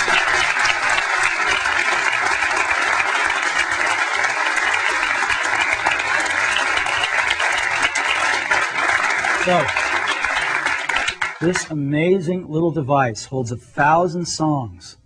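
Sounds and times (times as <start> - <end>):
audience applauding: 0.0 - 11.8.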